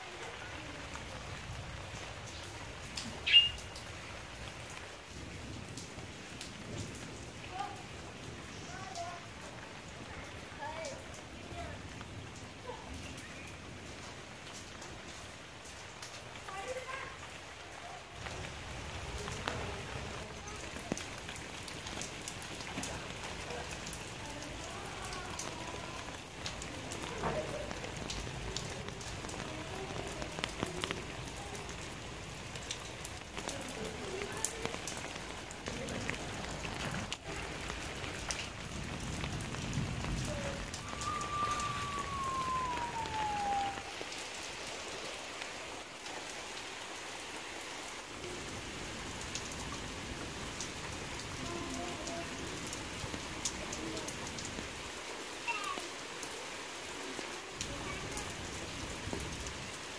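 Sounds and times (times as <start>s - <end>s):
rain falling on wet ground: 0.0s - 59.9s
thin falling whistle: 40.8s - 43.9s.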